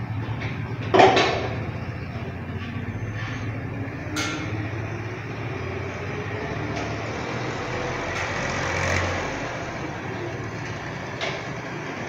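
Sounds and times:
steady low rumble: 1.5 - 6.5.

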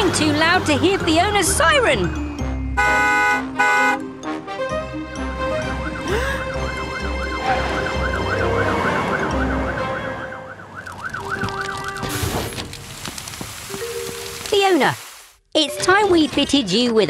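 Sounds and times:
truck engine rumble: 0.0 - 14.5
fire truck siren wailing: 4.6 - 12.4.

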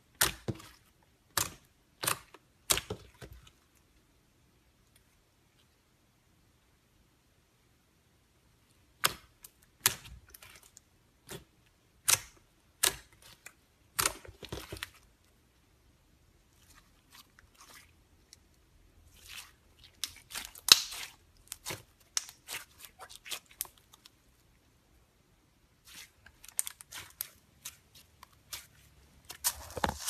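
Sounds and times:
slime crackling: 16.5 - 24.3, 25.7 - 30.0.

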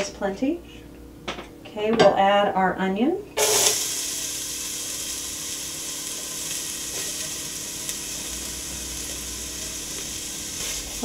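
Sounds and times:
onion sizzling in oil: 3.4 - 11.0.

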